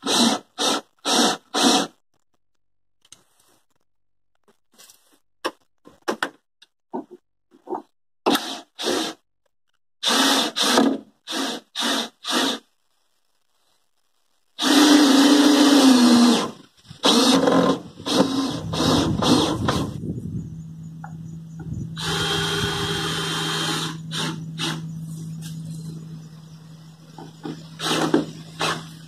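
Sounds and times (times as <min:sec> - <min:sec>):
cordless drill driving screws: 0:14.6 - 0:19.9, 0:22.0 - 0:24.8, 0:27.8 - 0:29.0.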